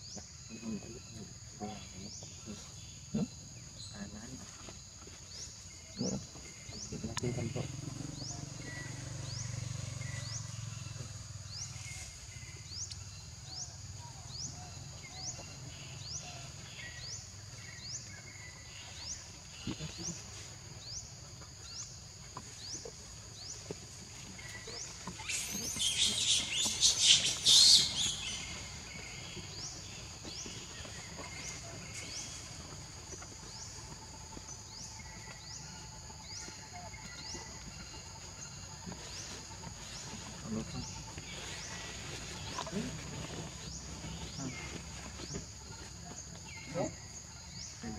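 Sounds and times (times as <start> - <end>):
insect chorus: 0.0 - 47.9.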